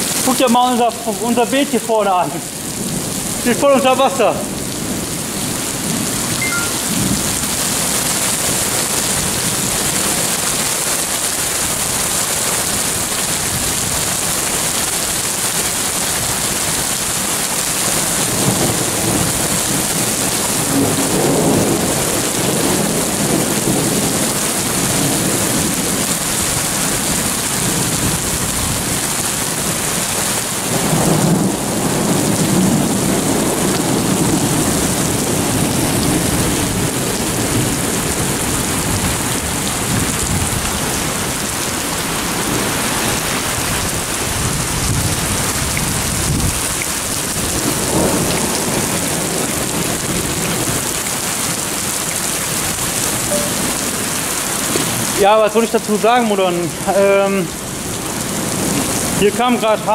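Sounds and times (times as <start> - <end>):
heavy rain pouring on street: 0.0 - 59.9.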